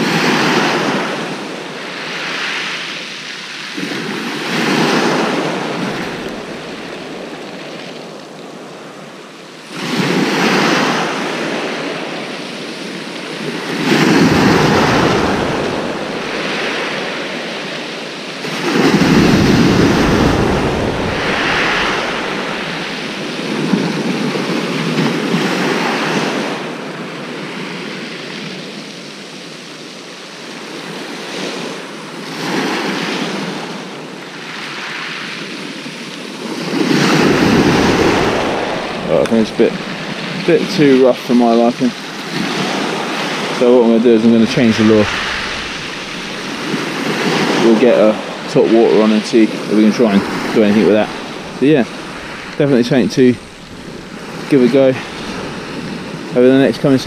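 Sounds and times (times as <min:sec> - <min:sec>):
waves breaking on shingle: 0:18.4 - 0:24.0, 0:36.7 - 0:56.3.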